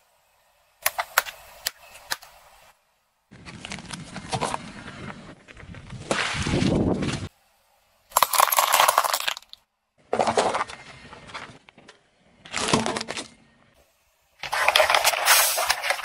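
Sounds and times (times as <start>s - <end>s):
paper cups collapsing: 8.1s - 9.6s, 14.4s - 16.0s
water beads squashed: 8.1s - 9.6s.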